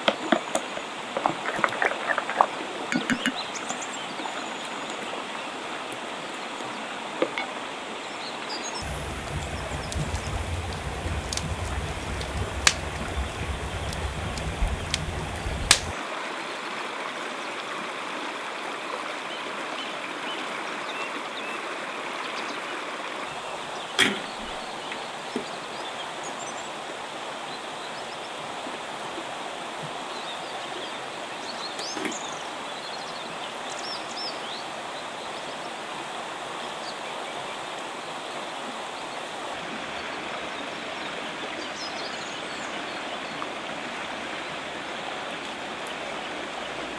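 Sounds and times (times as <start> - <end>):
river running over stones: 0.0 - 46.9
campfire crackling and popping: 8.8 - 16.0.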